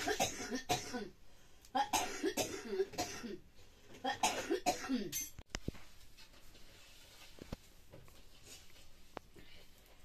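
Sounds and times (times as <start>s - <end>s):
person coughing: 0.0s - 1.2s, 1.8s - 3.4s, 4.0s - 5.3s.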